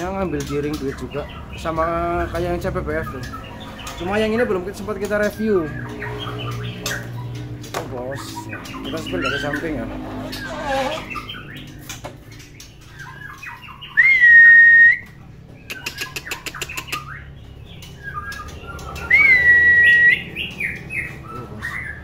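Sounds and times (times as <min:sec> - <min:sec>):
bird chattering notes: 0:00.0 - 0:22.0
loud clear bird whistles: 0:13.9 - 0:15.1, 0:19.1 - 0:20.3.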